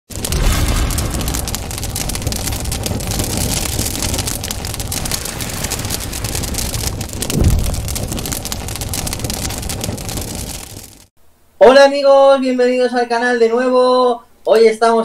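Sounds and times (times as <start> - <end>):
low rumble: 0.1 - 10.9
explosion boom: 0.1 - 11.0
crackling fizzing noise: 0.1 - 11.1.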